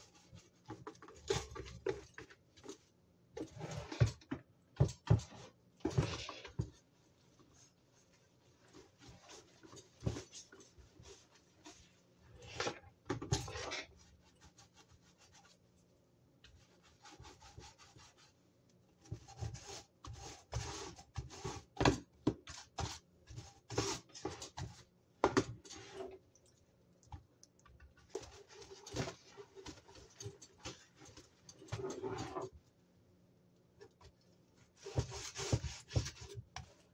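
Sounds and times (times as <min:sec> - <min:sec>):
dish brush scrubbing: 0:07.4 - 0:15.6, 0:16.6 - 0:18.4, 0:34.7 - 0:36.9.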